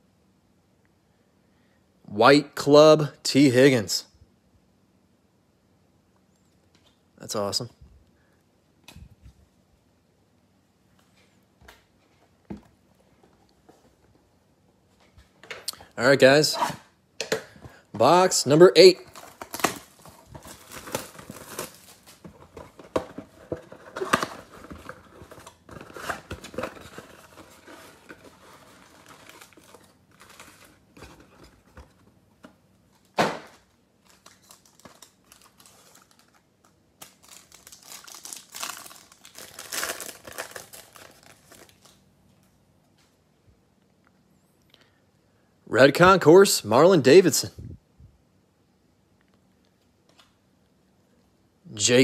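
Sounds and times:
plastic wrap crinkling and tearing: 0:18.8 - 0:31.8, 0:34.0 - 0:42.0.

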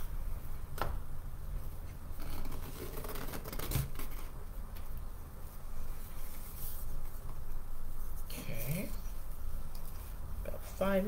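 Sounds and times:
low steady hum: 0:00.0 - 0:11.0
fabric rustling and scraping: 0:01.6 - 0:04.4, 0:05.4 - 0:11.0.

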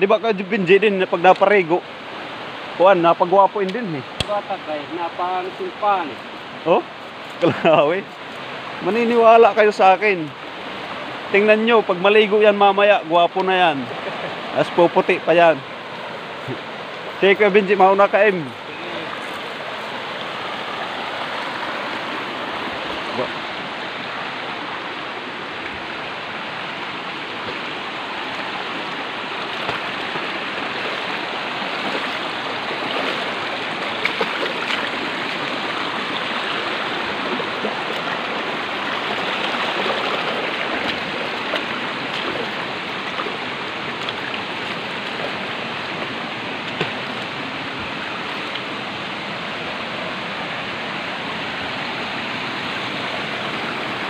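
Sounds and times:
forest stream rushing: 0:00.0 - 0:54.0.

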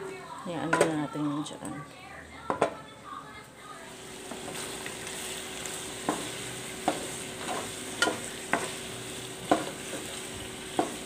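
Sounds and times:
chicken and onions sizzling in pot: 0:03.6 - 0:11.0
wooden spoon knocking against pot: 0:09.5 - 0:09.7.

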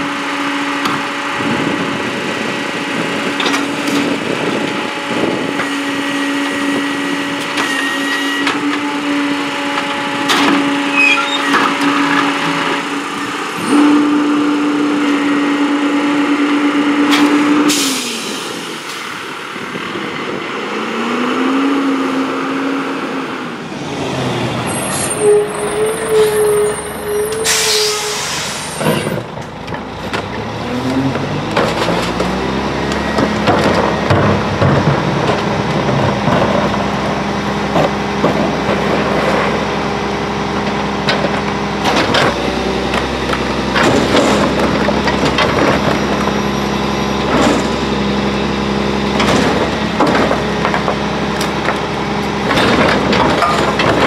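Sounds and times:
garbage truck diesel engine: 0:00.0 - 0:54.0
truck engine revving: 0:00.0 - 0:54.0
air brake hiss: 0:17.7 - 0:18.7, 0:27.4 - 0:28.9
knocks and clatter of cart: 0:28.8 - 0:39.7, 0:40.5 - 0:48.2, 0:49.0 - 0:54.0.

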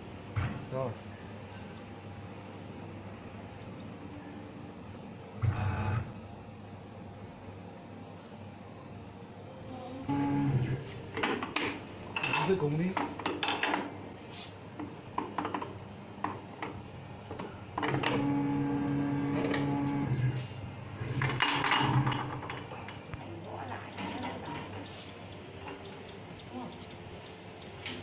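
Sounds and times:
steady tonal hum: 0:01.0 - 0:12.9.

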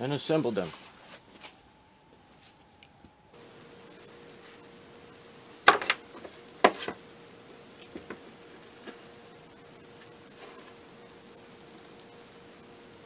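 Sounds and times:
faint steady hum: 0:00.0 - 0:13.0
spot welder snapping: 0:03.4 - 0:08.6
small ticks: 0:11.6 - 0:12.7.

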